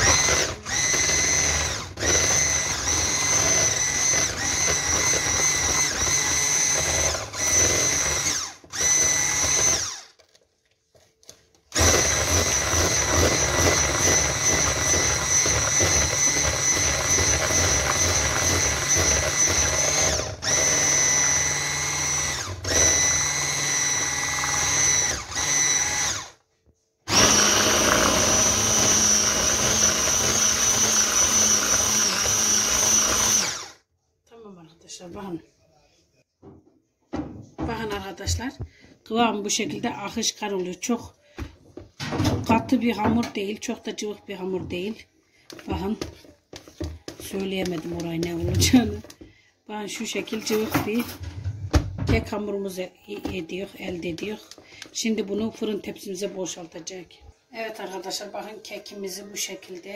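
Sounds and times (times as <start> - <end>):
electric hand mixer whining: 0.0 - 10.4, 11.7 - 26.4, 27.1 - 33.8, 45.5 - 49.2.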